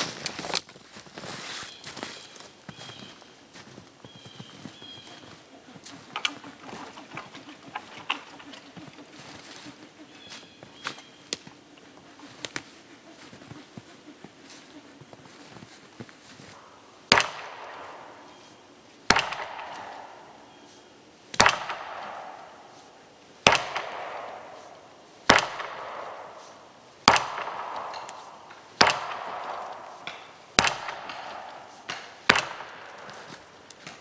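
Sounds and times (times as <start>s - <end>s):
axe chopping wood: 17.1s - 17.6s, 21.4s - 22.1s, 25.3s - 25.8s, 27.1s - 28.2s, 28.8s - 34.0s.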